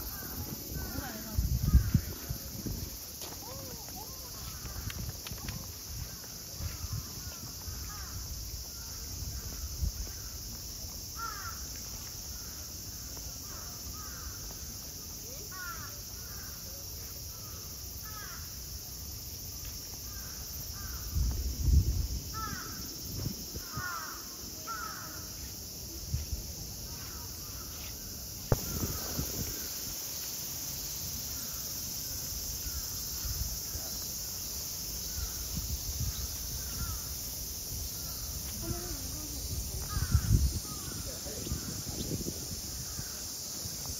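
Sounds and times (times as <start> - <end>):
steady high outdoor hiss: 0.0 - 43.9
crows cawing: 11.2 - 11.7, 23.6 - 25.2.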